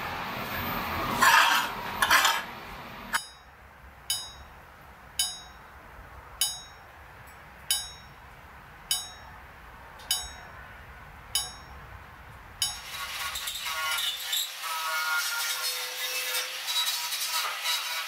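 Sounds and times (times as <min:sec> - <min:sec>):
hammer tapping steel: 0:03.1 - 0:04.6, 0:05.2 - 0:05.8, 0:06.4 - 0:09.4, 0:10.0 - 0:10.6, 0:11.3 - 0:11.9, 0:12.6 - 0:12.9.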